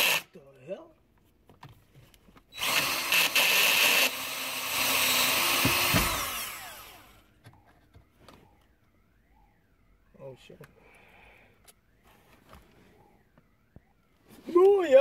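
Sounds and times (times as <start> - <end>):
small power tool motor: 0.0 - 0.2, 2.6 - 7.3.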